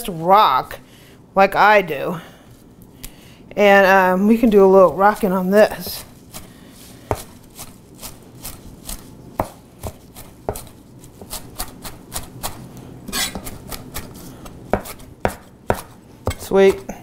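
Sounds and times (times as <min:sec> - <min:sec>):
knife chopping on cutting board: 0:07.1 - 0:16.8.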